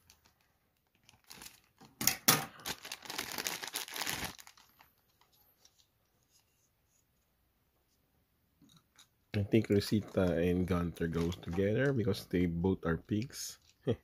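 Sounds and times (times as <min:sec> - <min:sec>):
plastic bag crinkling: 0:00.0 - 0:05.3, 0:09.6 - 0:12.2.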